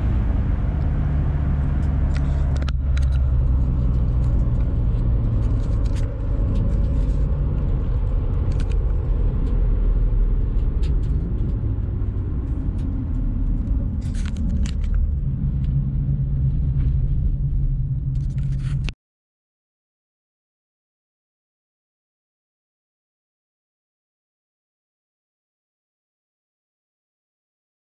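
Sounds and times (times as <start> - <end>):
car engine and road noise: 0.0 - 19.0.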